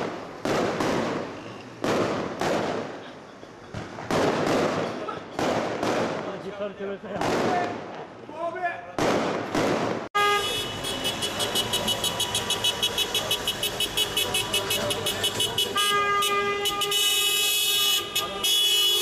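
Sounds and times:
fireworks crackle: 0.0 - 8.2
car horns honking: 10.2 - 19.0.

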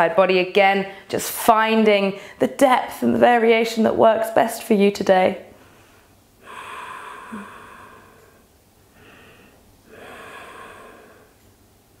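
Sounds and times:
woman breathing deeply: 5.5 - 12.0.

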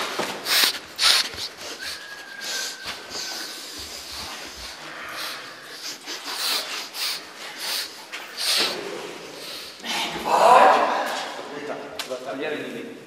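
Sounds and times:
person breathing hard: 0.4 - 10.2.

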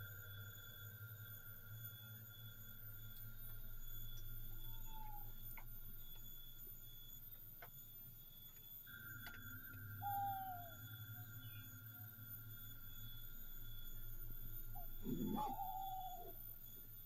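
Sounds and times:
high-pitched electronic whine: 0.0 - 17.0
low hum: 0.0 - 17.0
faint clicks: 5.0 - 6.3, 8.4 - 9.9
falling chirps: 8.9 - 16.9.

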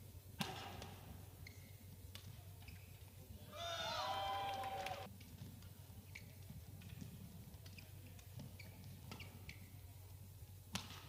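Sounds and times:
racket striking shuttlecock: 0.4 - 2.8, 10.7 - 11.0
shoes squeaking on court: 0.4 - 3.4, 5.3 - 11.0.

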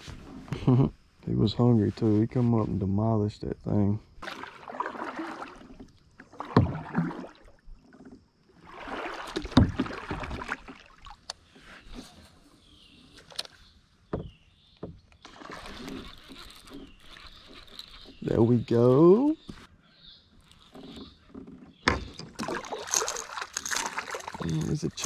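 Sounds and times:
paddle splashing through water: 4.2 - 11.7, 15.2 - 18.2, 20.5 - 25.0.

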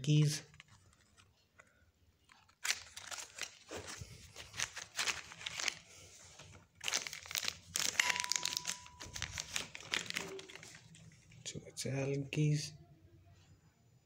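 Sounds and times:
packaging crinkling: 0.5 - 11.4.

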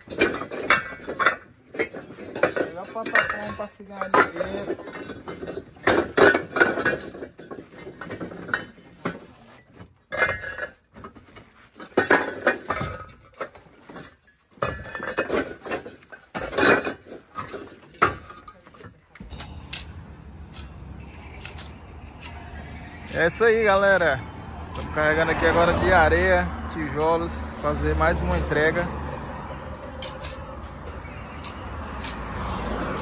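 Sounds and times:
clay bricks clinking and knocking: 0.0 - 19.6.

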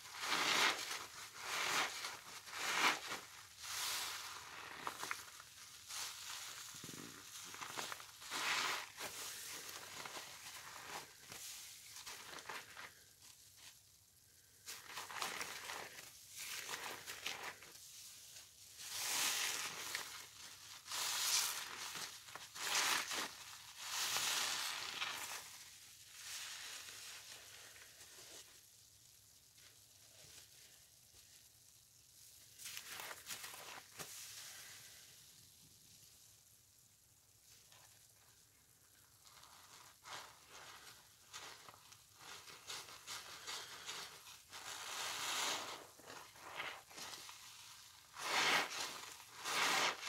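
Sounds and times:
wet sponge squelching: 39.2 - 47.2, 48.1 - 50.0.

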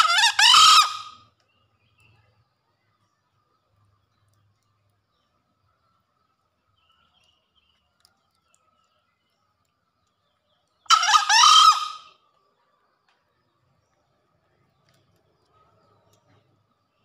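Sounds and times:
junglefowl crowing: 0.0 - 1.2, 10.9 - 12.2.

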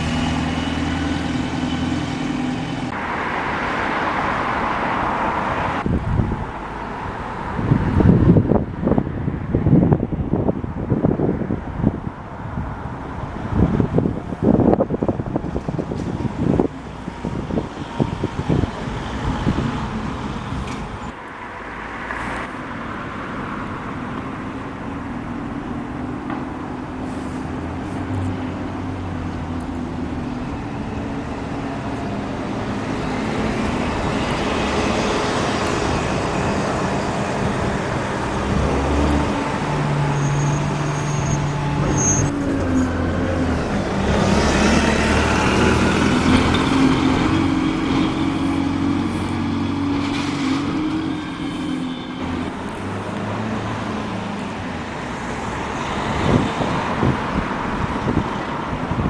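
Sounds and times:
bus engines pulling away: 0.0 - 9.0, 9.6 - 21.4, 22.1 - 59.0
road traffic noise: 0.0 - 59.0.

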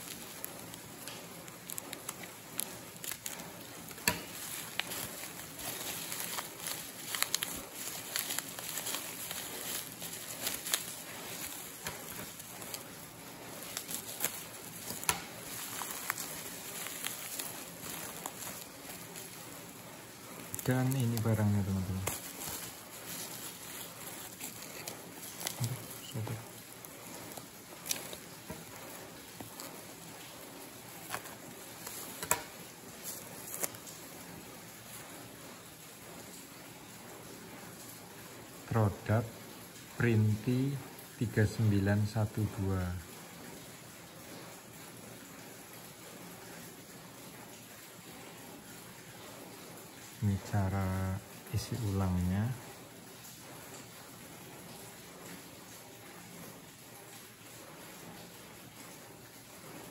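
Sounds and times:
bubble wrap crinkling and snapping: 0.0 - 36.6.

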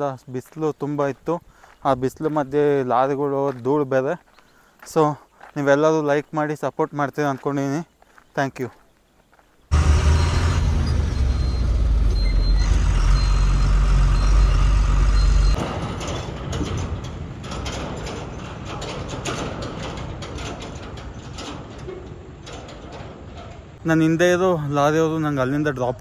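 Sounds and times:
lorry diesel engine running: 9.7 - 15.6
short high beeps: 10.1 - 15.6
rattling and clicking: 15.5 - 23.8.

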